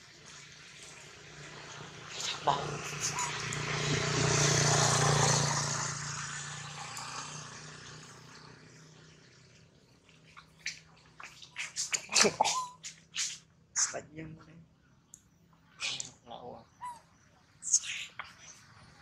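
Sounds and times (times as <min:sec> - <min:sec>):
vehicle passing: 0:00.2 - 0:11.3.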